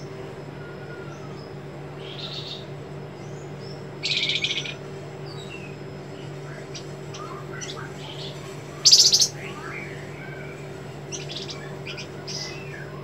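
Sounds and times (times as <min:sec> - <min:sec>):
harsh buzzing bird call: 0:00.0 - 0:13.0
steady low hum: 0:00.0 - 0:13.0
bird chirping and whistling: 0:04.0 - 0:13.0.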